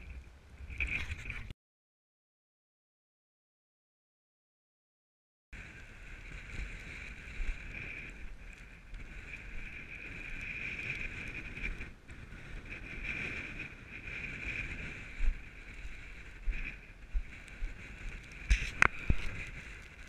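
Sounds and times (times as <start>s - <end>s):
wind buffeting microphone: 5.6s - 20.0s.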